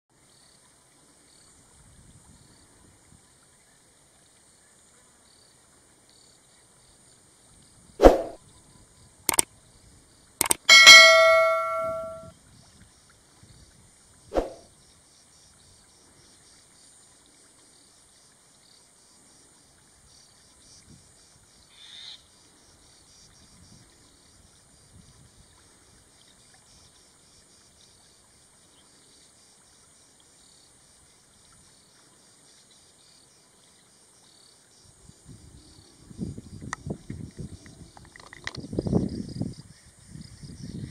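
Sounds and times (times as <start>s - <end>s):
sharp metallic knocks: 10.4s - 12.2s
struck metal ringing: 10.4s - 12.3s.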